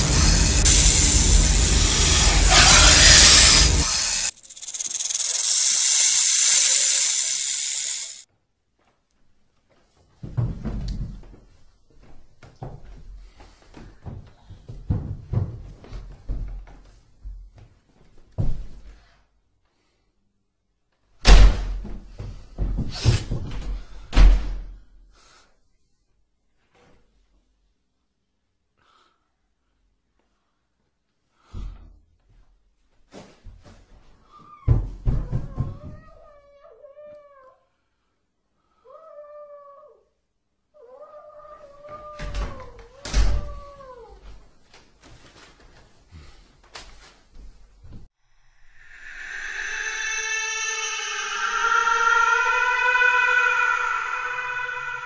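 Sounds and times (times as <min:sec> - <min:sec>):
low rumble: 0:00.0 - 0:04.3, 0:48.4 - 0:55.0
snake hissing: 0:00.0 - 0:08.2, 0:48.4 - 0:55.0.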